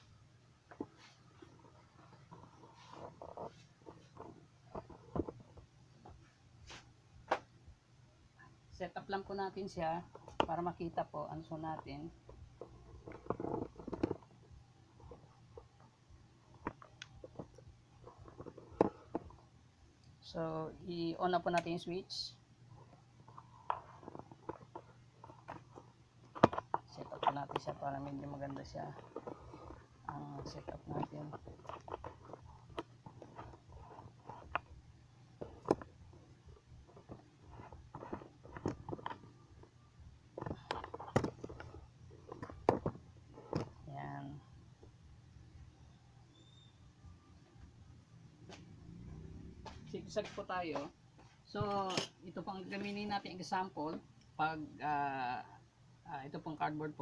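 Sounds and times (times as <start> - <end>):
faint low hum: 0.0 - 57.0
handling rustle and knocks: 22.8 - 45.0.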